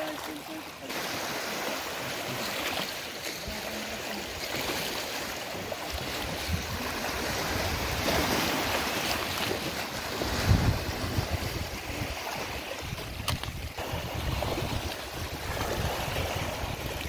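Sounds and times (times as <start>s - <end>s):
floodwater washing around boat: 0.0s - 17.0s
wind rumble on microphone: 5.9s - 17.0s.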